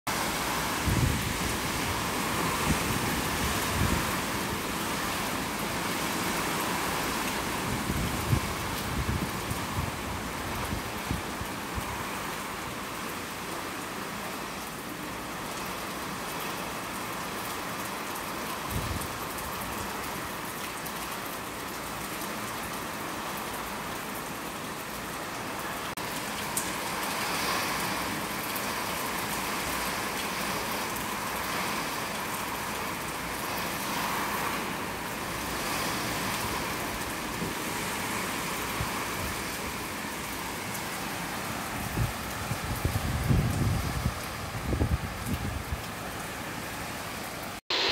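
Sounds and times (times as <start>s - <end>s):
heavy rain pouring: 0.1s - 47.9s.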